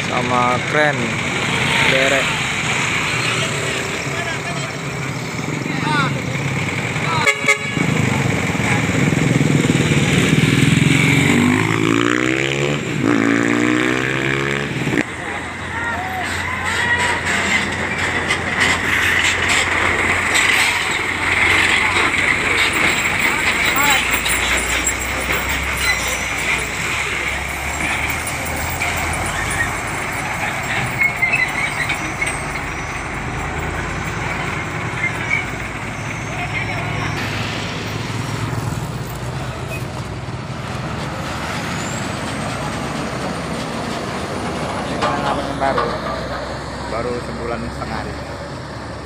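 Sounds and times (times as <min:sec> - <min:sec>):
truck diesel engine: 0:00.0 - 0:49.0
tyres on rough road: 0:00.0 - 0:49.0
small motorcycles passing: 0:07.8 - 0:15.4.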